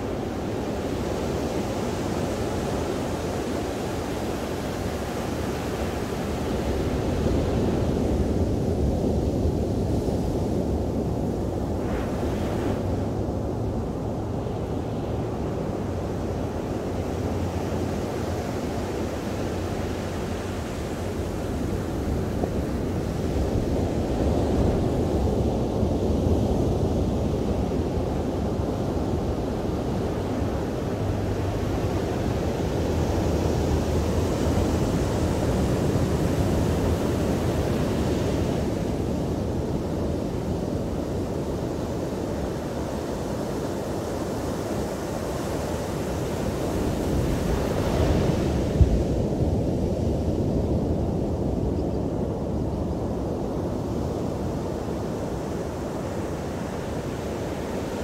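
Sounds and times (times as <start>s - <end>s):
surf breaking on a beach: 0.0s - 58.0s.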